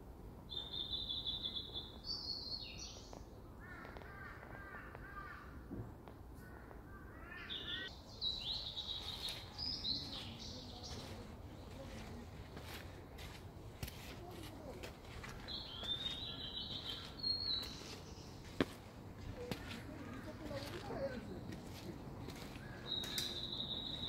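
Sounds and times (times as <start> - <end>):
songbirds singing: 0.5 - 5.5, 6.4 - 13.3, 15.0 - 24.0.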